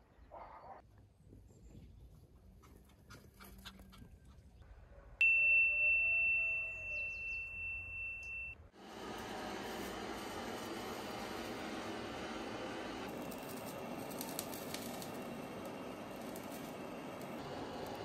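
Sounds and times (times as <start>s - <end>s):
steady high tone: 5.2s - 8.7s
gas torch hissing: 8.8s - 18.0s.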